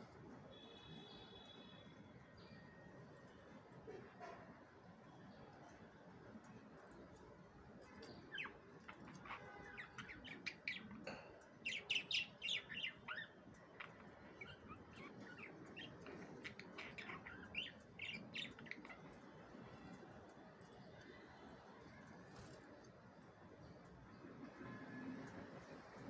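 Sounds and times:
budgerigars chirping: 0:08.3 - 0:10.9, 0:11.7 - 0:19.0.

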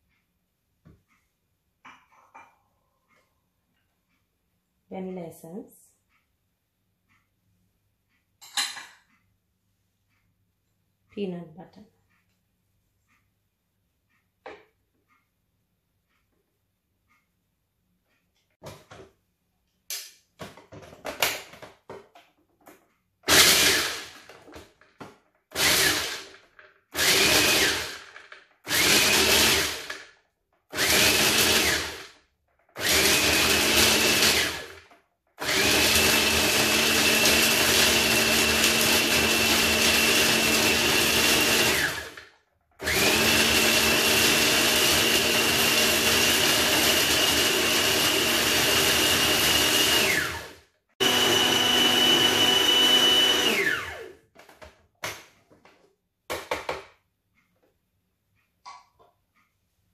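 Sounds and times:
food processor whirring: 0:23.2 - 0:54.2.

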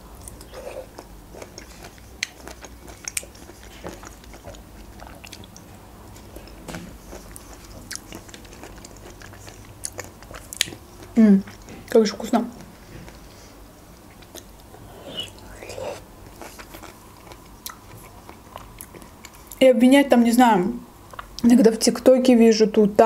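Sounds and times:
wet chewing: 0:00.2 - 0:12.0, 0:14.0 - 0:19.6
mouth clicks and smacks: 0:14.1 - 0:16.0.

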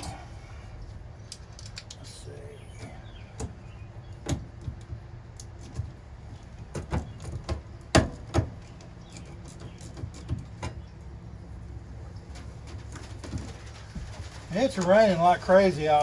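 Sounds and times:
rain on metal roof: 0:12.4 - 0:16.0.

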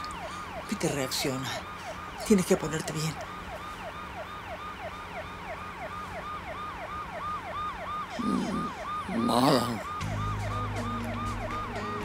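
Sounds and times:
ambulance siren yelping: 0:00.0 - 0:12.0
man moaning: 0:08.2 - 0:08.8.

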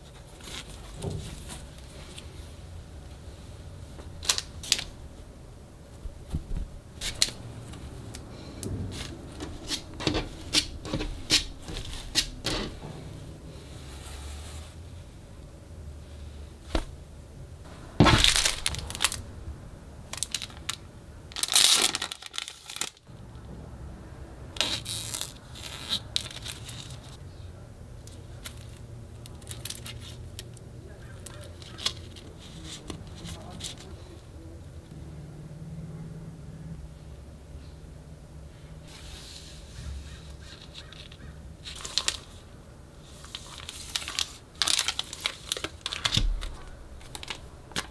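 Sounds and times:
low hum: 0:02.0 - 0:21.6
cloth rustling: 0:17.6 - 0:19.5
plastic packaging crinkling: 0:17.7 - 0:19.4, 0:20.0 - 0:23.1, 0:40.4 - 0:47.9.

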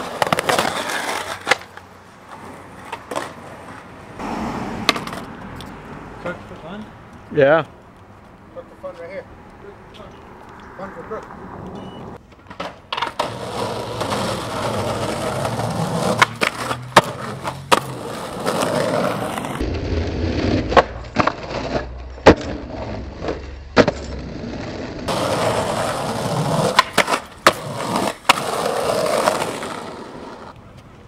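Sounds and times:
skateboard clacks: 0:00.0 - 0:03.8, 0:04.8 - 0:05.3, 0:12.2 - 0:19.6, 0:25.1 - 0:30.9
skateboard wheels rolling on pavement: 0:00.0 - 0:31.0.

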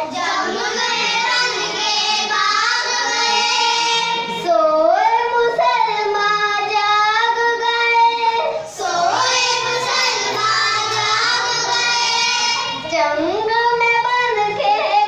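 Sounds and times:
girls singing together: 0:00.0 - 0:15.0.

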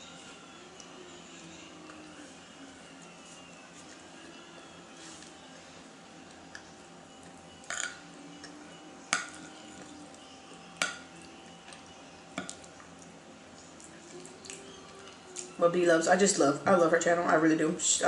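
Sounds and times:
metal spoon clinking on plate: 0:07.6 - 0:08.0.

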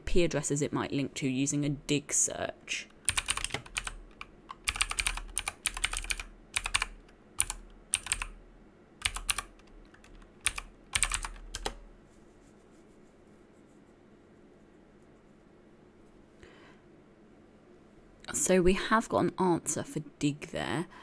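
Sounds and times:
computer keyboard typing: 0:02.9 - 0:08.4, 0:09.0 - 0:11.8.

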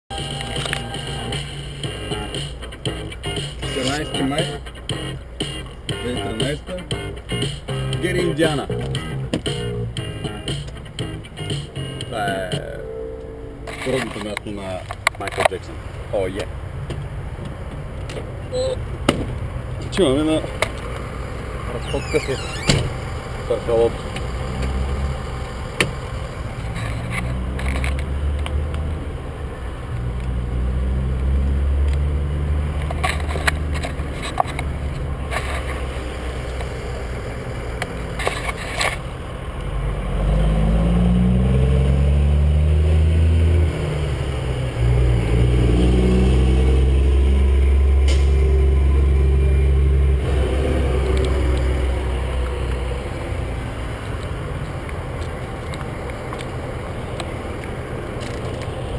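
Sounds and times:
large vehicle engine revving: 0:18.4 - 0:58.9.

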